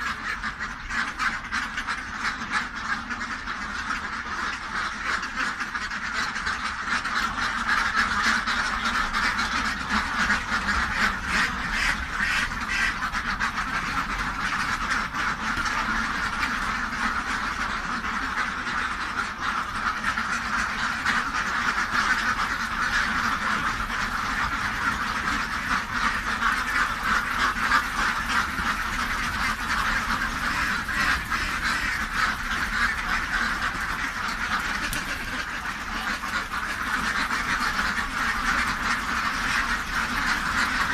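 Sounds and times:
ducks quacking: 0.0 - 40.9.

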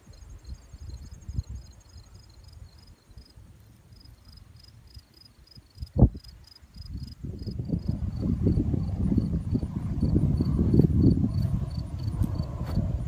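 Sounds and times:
crickets chirping: 0.0 - 13.0
low rumbling noise: 6.9 - 13.0.

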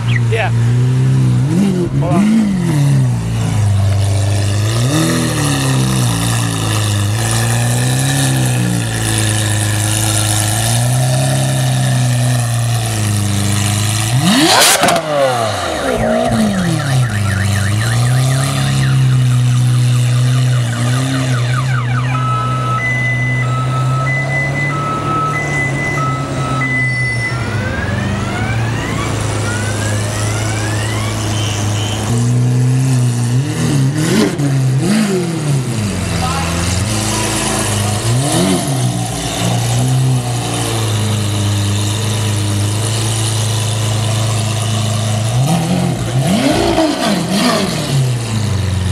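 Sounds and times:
sports car engine revving: 0.1 - 26.9, 27.8 - 48.9
car alarm beeping and whooping: 14.4 - 32.1.

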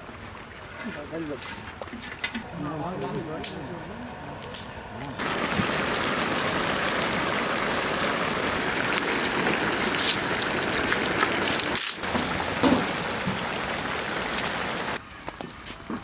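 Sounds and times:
curry bubbling and sizzling: 5.0 - 16.0.

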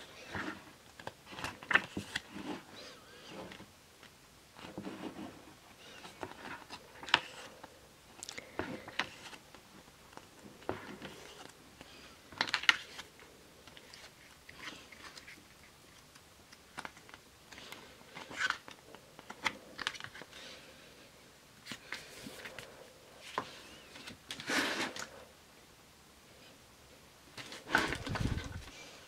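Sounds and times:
paper rustling: 27.4 - 28.9.

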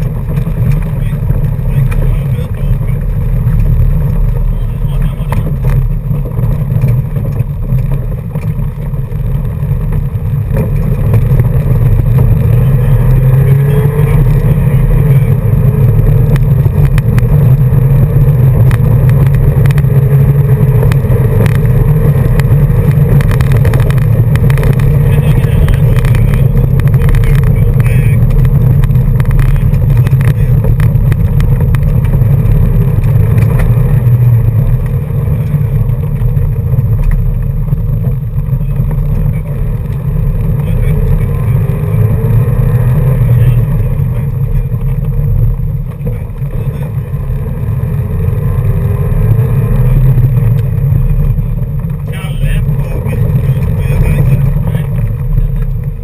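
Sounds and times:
car engine drone: 0.0 - 56.0
stones clicking against underbody: 25.6 - 38.1.

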